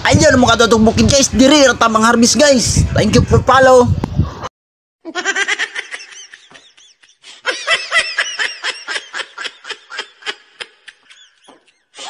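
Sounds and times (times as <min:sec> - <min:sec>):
canned cackling laughter: 0:05.1 - 0:12.0.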